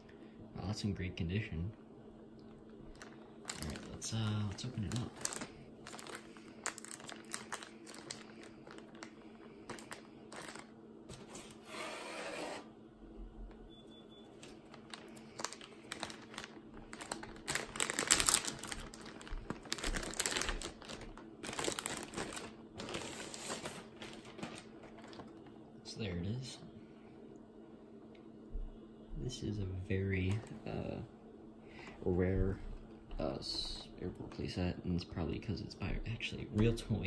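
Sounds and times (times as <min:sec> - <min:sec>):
cardboard and plastic packaging rustling: 0:02.9 - 0:11.7, 0:14.3 - 0:25.6, 0:32.1 - 0:34.6.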